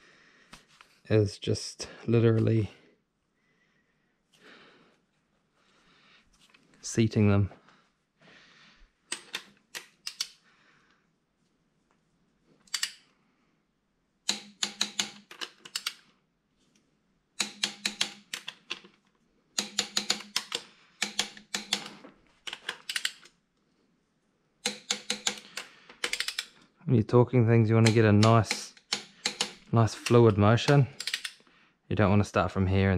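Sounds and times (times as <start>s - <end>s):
socket ratchet clicking: 9.1s - 10.4s, 14.3s - 16.0s, 17.4s - 18.9s, 19.6s - 23.3s, 24.6s - 26.6s, 27.8s - 31.4s.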